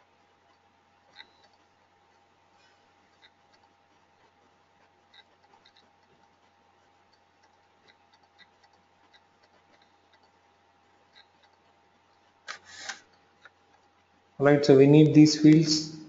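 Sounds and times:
faint irregular ticks: 0:00.0 - 0:14.4
faint steady hum: 0:00.0 - 0:16.0.

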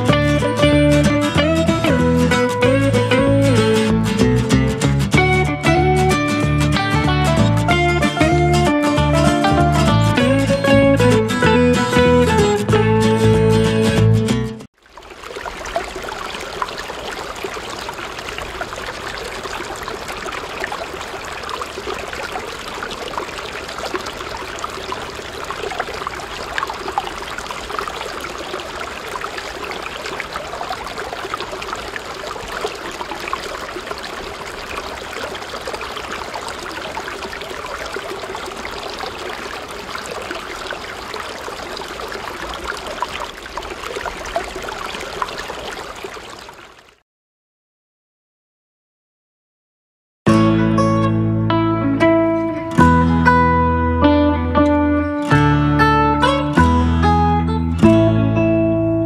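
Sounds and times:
water stream trickling into pool: 0:00.0 - 0:12.5, 0:14.6 - 0:47.0.

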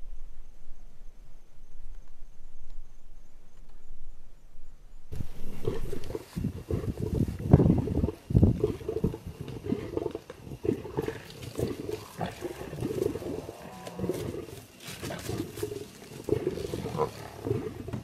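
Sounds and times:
lions growling and snarling: 0:05.2 - 0:18.0.

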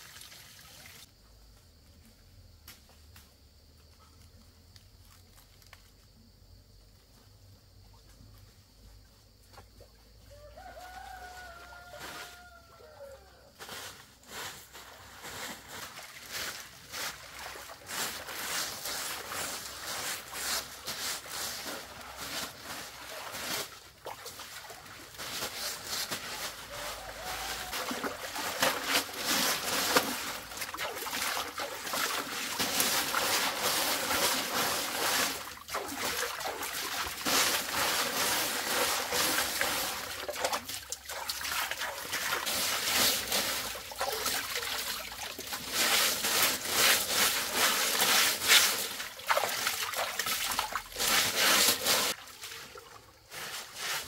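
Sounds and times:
water trickling and splashing: 0:00.0 - 0:01.1, 0:14.4 - 0:54.0.

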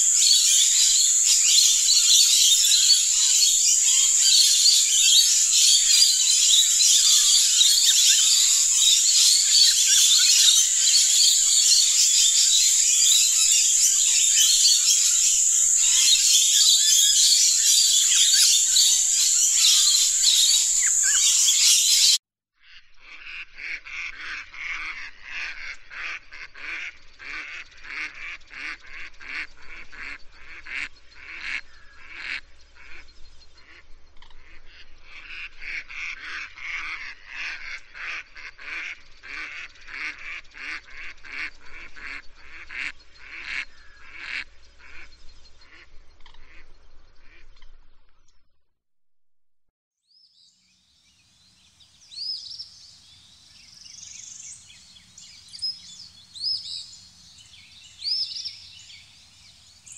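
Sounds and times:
lorikeets screeching: 0:00.0 - 0:22.2, 0:52.0 - 0:59.9
ducks quacking: 0:00.2 - 0:22.2.

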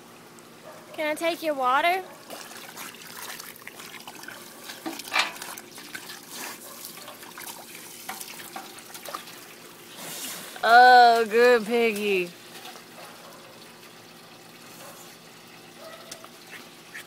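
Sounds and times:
water running and trickling: 0:00.0 - 0:17.0
water splashing: 0:02.2 - 0:13.4.

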